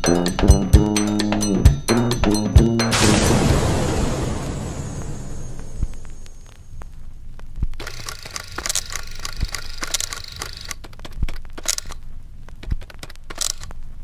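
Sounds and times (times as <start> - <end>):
crackling tearing noise: 5.9 - 14.0.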